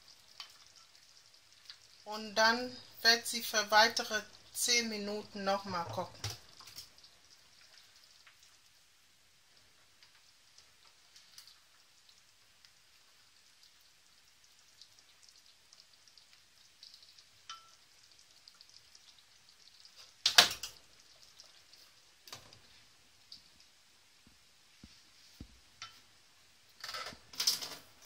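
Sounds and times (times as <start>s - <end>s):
soup simmering with popping bubbles: 0.0s - 28.0s
clatter at steel pot: 26.8s - 27.9s.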